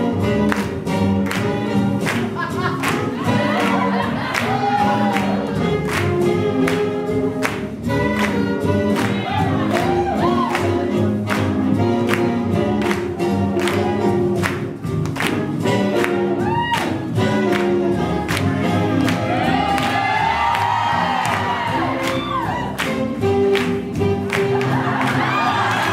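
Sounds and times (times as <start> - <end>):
up-tempo swing band: 0.0 - 25.9
people singing: 2.5 - 5.8.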